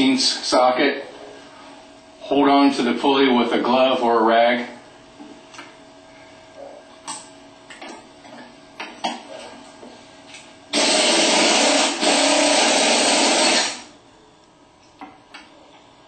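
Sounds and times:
impact wrench running: 0:10.7 - 0:13.9.

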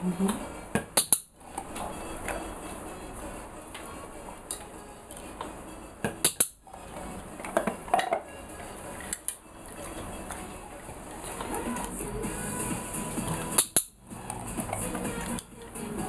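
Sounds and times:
ball clacking against bowls: 0:06.1 - 0:10.5, 0:13.4 - 0:15.5.

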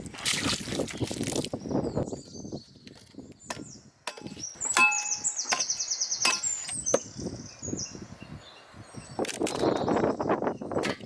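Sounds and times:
bird singing: 0:00.9 - 0:10.8
hatchet chopping wood: 0:03.5 - 0:07.1.

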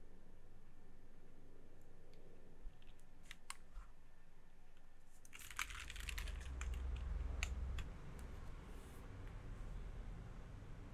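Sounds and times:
mechanical keyboard typing: 0:05.3 - 0:07.1.

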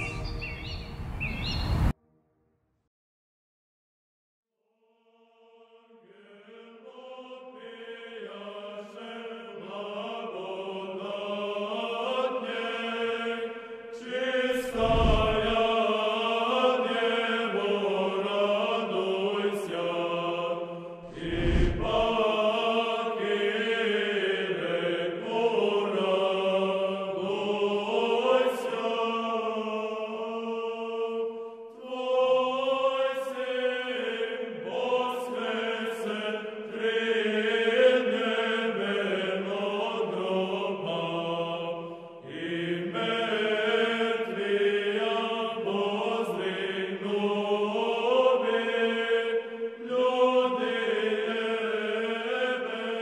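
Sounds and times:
slow sung chant with drone: 0:04.7 - 0:53.0
deep booms: 0:14.7 - 0:15.8, 0:21.1 - 0:22.2.

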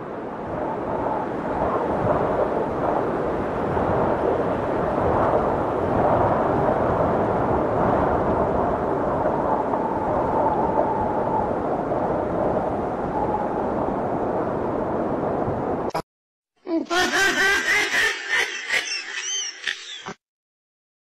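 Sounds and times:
wind buffeting a microphone: 0:00.0 - 0:15.9.

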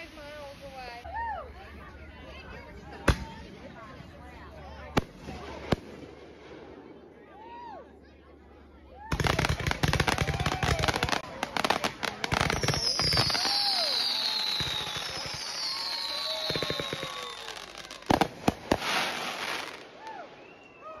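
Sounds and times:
fireworks crackling and popping: 0:00.0 - 0:01.0, 0:04.9 - 0:06.8, 0:09.1 - 0:20.8
fireworks loud bangs: 0:09.1 - 0:19.9
fireworks falling whistles: 0:12.3 - 0:21.0.

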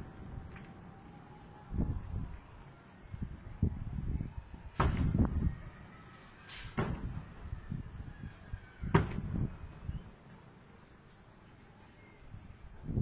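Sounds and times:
fireworks booming: 0:04.7 - 0:05.5, 0:06.4 - 0:08.0, 0:08.8 - 0:10.0.

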